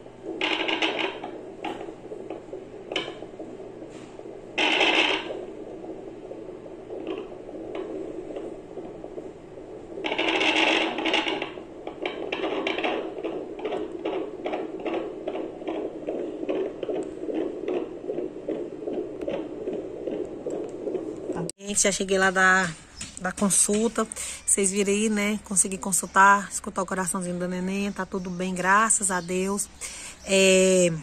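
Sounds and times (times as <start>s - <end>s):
doppler heartbeat whooshing pulse: 1.0s - 21.5s.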